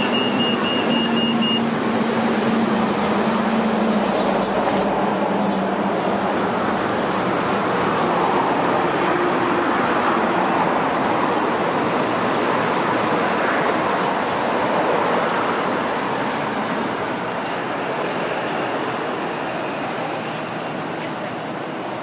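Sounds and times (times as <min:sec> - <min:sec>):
light rail train rumbling: 0:00.0 - 0:22.0.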